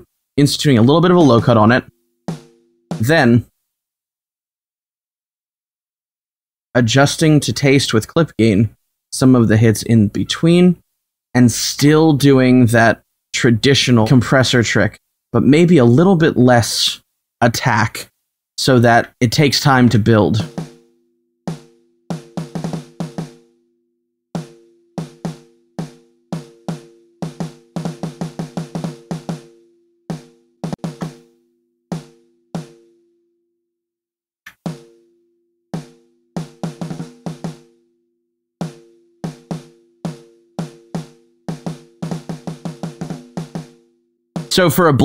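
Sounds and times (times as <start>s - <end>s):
snare drum hits: 2.3s - 3.3s, 30.1s - 31.2s, 44.4s - 44.6s.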